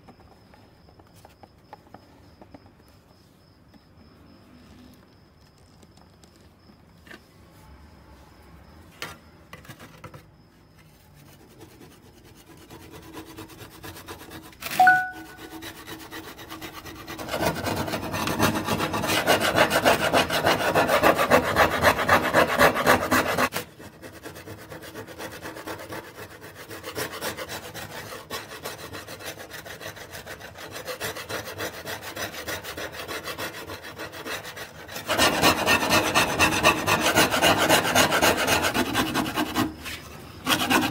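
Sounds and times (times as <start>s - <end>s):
steel tool scraping saw blade: 14.2s - 23.6s, 25.6s - 40.9s.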